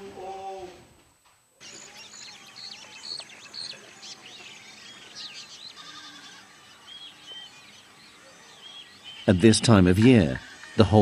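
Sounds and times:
small birds chirping: 0:01.6 - 0:11.0.

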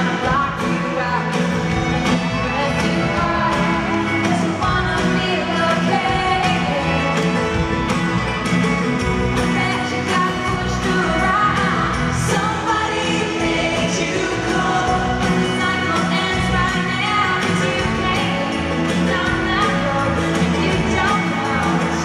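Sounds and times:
woman singing lead: 0:00.0 - 0:08.3, 0:08.9 - 0:22.0
country-pop band playing: 0:00.0 - 0:22.0.

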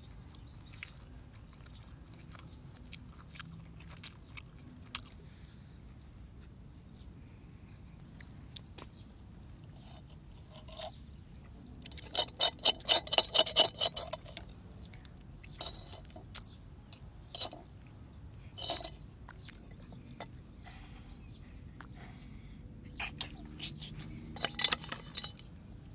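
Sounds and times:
eating clicks and scrapes: 0:00.0 - 0:05.2, 0:09.6 - 0:20.4, 0:23.0 - 0:25.9.

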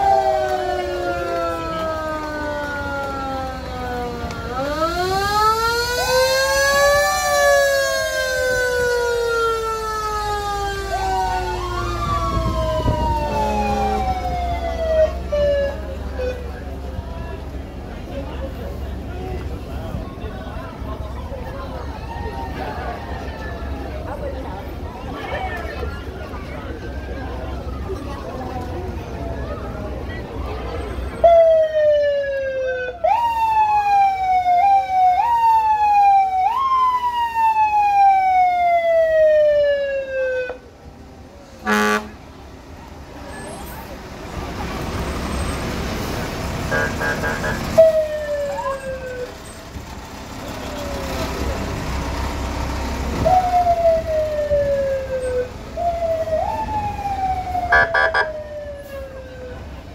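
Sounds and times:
emergency vehicle siren: 0:00.0 - 0:59.9
horn blasts: 0:41.6 - 0:42.2, 0:46.7 - 0:47.9, 0:57.7 - 0:58.3.

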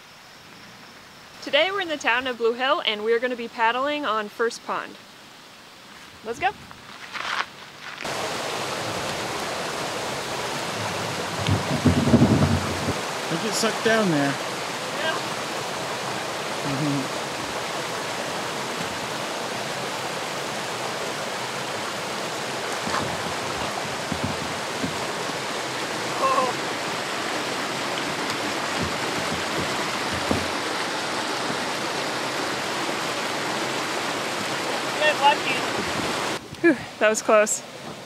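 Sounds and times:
stream water rushing over rocks: 0:08.0 - 0:38.0
kayak hull knocks: 0:11.3 - 0:13.0, 0:22.7 - 0:26.0, 0:27.4 - 0:31.8.

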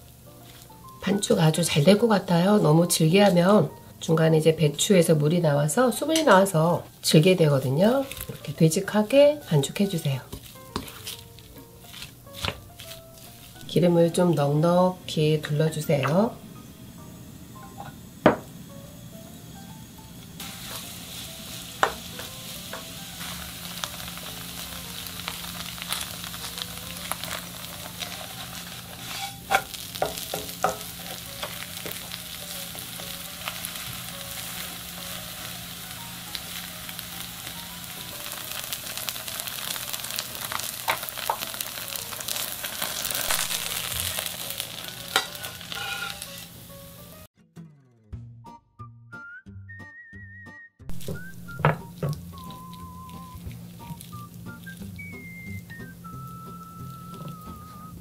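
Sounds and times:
batter sizzling in oil: 0:00.0 - 0:47.3, 0:50.9 - 0:57.9
spoon and spatula scraping pan: 0:10.3 - 0:13.6, 0:28.0 - 0:32.1, 0:44.5 - 0:46.5.

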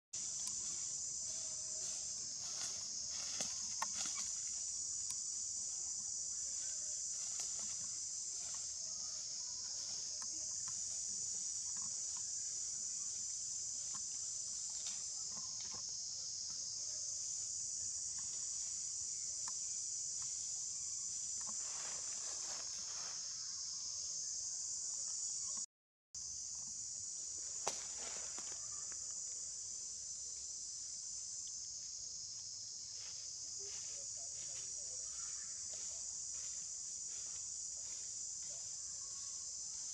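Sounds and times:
rustles: 0:00.2 - 0:05.5, 0:06.1 - 0:16.0, 0:17.1 - 0:23.6, 0:27.3 - 0:29.4
insect chorus trilling: 0:00.2 - 0:39.9.

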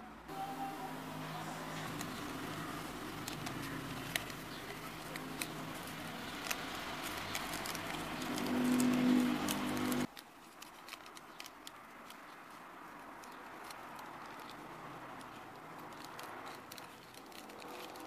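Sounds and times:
paper crinkling and rustling: 0:01.1 - 0:18.0.

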